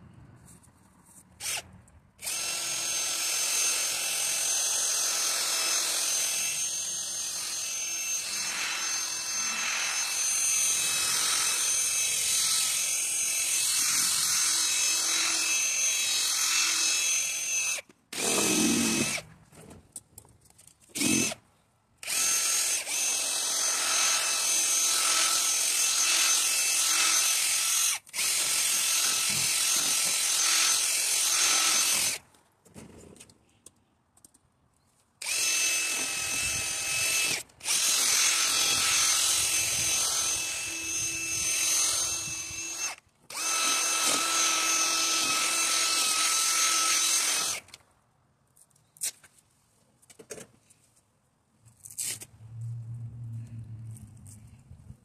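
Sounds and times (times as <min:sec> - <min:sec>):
cordless drill motor whine: 0:02.2 - 0:19.2, 0:21.0 - 0:21.4, 0:22.0 - 0:32.2, 0:35.2 - 0:47.8.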